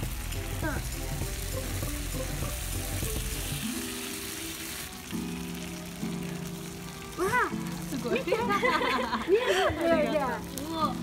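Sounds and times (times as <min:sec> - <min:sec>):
background music: 0:00.0 - 0:11.0
food sizzling on griddle: 0:00.0 - 0:11.0.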